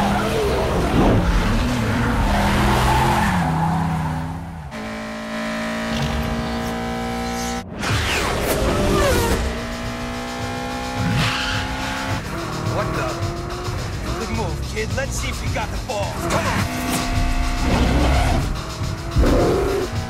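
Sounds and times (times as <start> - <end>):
car engines revving: 0.0 - 20.0
film music score: 5.9 - 20.0.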